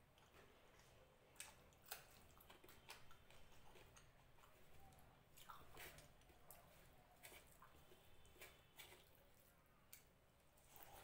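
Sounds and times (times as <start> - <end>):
chewing clicks and smacks: 0.2 - 9.2
fingers mixing rice on plate: 1.4 - 11.0.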